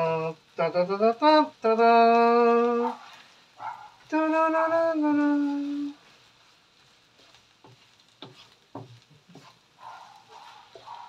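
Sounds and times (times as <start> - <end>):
person humming: 0.0 - 3.0, 4.1 - 6.0
wooden spoon stirring in pan: 0.0 - 11.0
spoon knocking against pan: 7.6 - 11.0.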